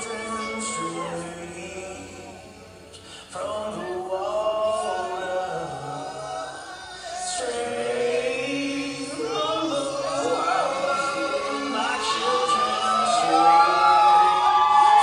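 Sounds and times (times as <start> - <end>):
choir singing held notes: 3.4 - 15.0.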